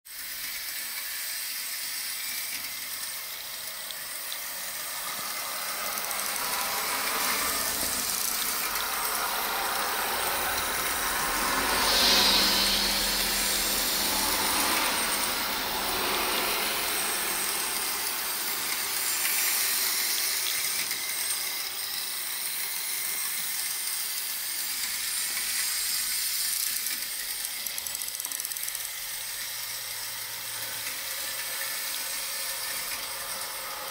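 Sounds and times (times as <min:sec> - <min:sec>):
steady hissing in bus cabin: 0:03.4 - 0:26.8.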